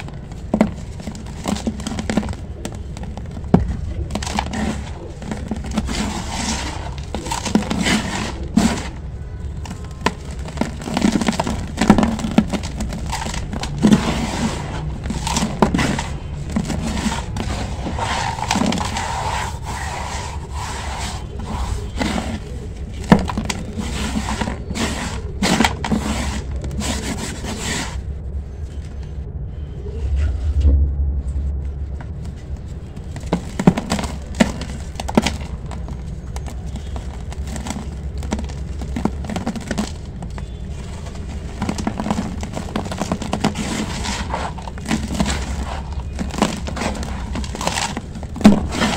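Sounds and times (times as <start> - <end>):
crunching and scraping of crumbled cement: 0.0 - 30.4, 31.6 - 48.9
steady low hum: 27.9 - 39.2.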